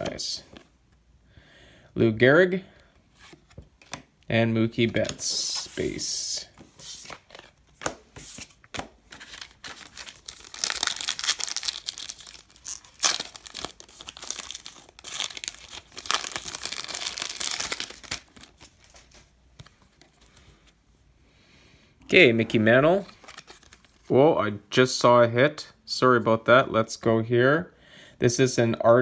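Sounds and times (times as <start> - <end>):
foil wrapper tearing and crinkling: 9.3 - 18.7.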